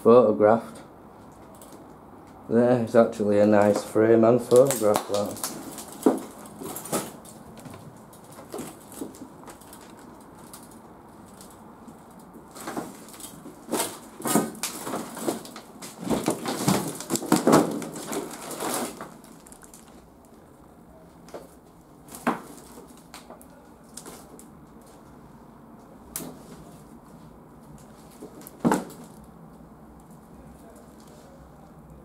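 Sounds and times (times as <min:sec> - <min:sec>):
knocks and crunches in debris: 0:04.5 - 0:20.1, 0:21.3 - 0:25.0, 0:27.9 - 0:29.2.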